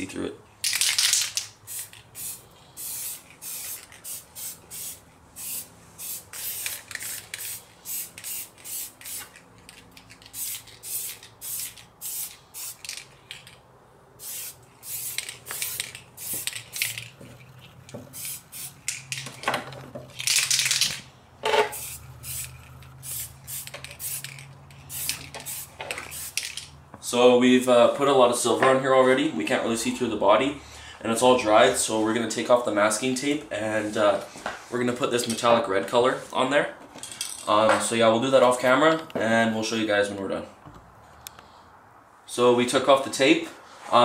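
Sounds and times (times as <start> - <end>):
spray paint can hissing: 0.6 - 13.5, 14.2 - 17.2, 17.8 - 19.3, 21.7 - 26.7.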